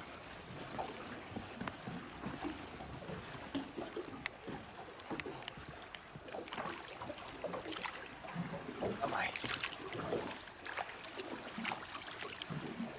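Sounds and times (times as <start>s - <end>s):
water sloshing against boat: 0.0s - 12.9s
small splashes and drips: 0.6s - 12.9s.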